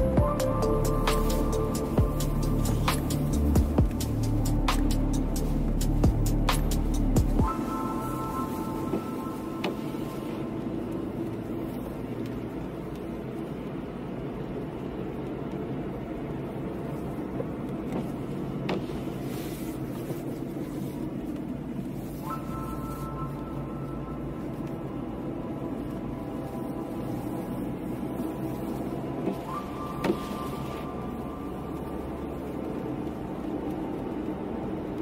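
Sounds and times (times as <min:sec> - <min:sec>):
car engine and tyre hiss: 0:00.0 - 0:35.0.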